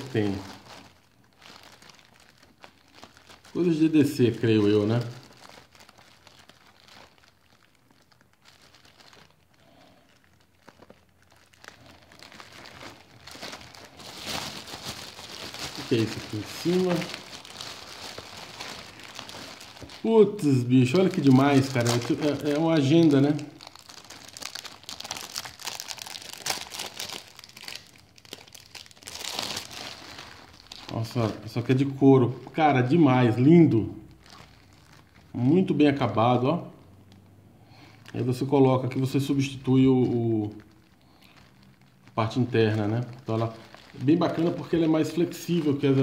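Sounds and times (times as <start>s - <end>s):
plastic bag crinkling: 0.0s - 46.0s.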